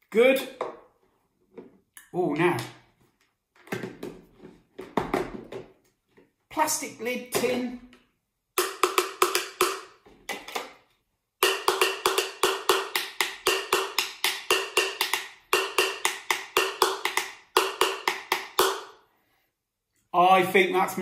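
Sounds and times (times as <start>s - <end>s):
pencil tapping plastic tub: 8.6s - 10.7s, 11.4s - 18.9s.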